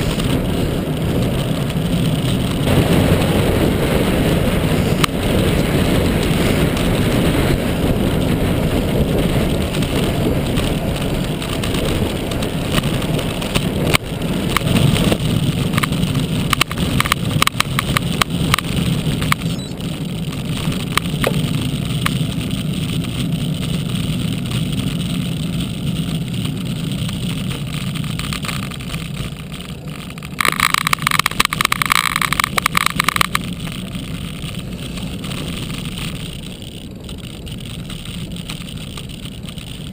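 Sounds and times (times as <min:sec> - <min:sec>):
bicycle clicks and rattles: 0:00.0 - 0:39.9
rapid buzzing clatter: 0:00.0 - 0:39.9
wind rush and road noise: 0:00.0 - 0:39.9.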